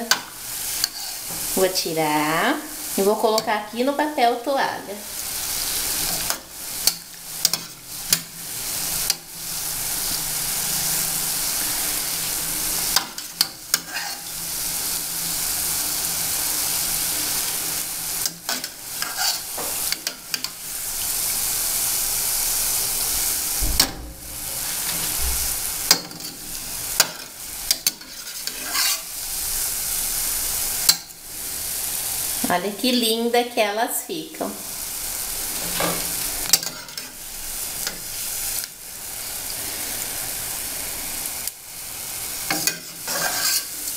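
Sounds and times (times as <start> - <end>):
metal spoon scraping pan: 0.1 - 1.5, 5.4 - 8.3, 12.9 - 14.3, 18.2 - 20.6, 25.8 - 29.2, 35.6 - 37.2, 42.5 - 43.9.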